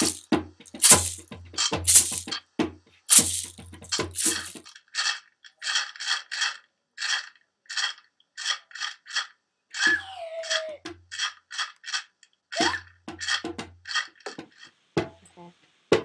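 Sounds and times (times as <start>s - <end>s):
shaker strokes: 0.0s - 2.4s, 3.1s - 4.7s.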